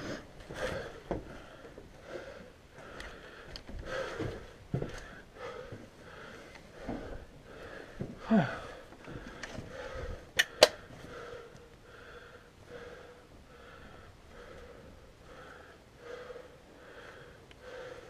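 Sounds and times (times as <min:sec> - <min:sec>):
person panting: 0:00.0 - 0:18.0
sharp cracks: 0:10.4 - 0:10.8.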